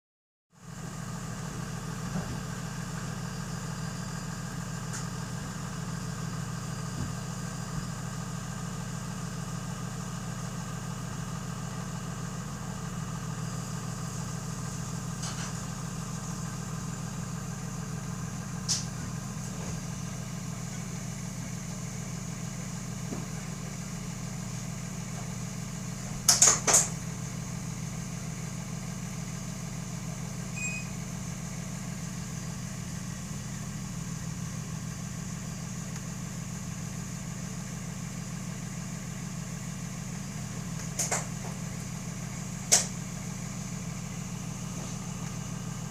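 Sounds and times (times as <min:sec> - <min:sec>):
bus engine idling: 0:00.6 - 0:45.9.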